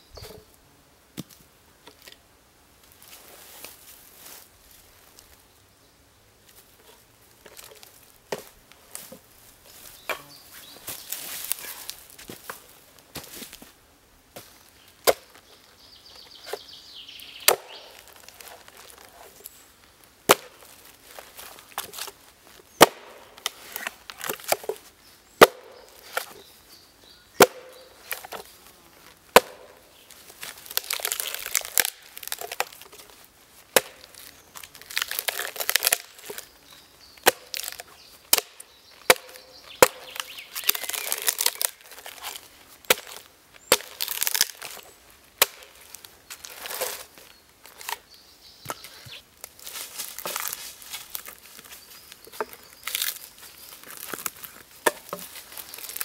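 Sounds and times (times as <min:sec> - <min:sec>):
axe striking a log: 0:15.0 - 0:15.3, 0:17.4 - 0:17.9, 0:20.3 - 0:20.6, 0:22.8 - 0:23.2, 0:25.4 - 0:26.3, 0:27.4 - 0:28.4, 0:29.3 - 0:29.7, 0:33.7 - 0:34.1, 0:37.2 - 0:41.4, 0:42.9 - 0:44.7, 0:45.4 - 0:45.8, 0:54.8 - 0:55.2
wood crackling and tearing: 0:17.4 - 0:19.6, 0:27.5 - 0:36.6, 0:37.2 - 0:48.1, 0:49.1 - 0:56.0.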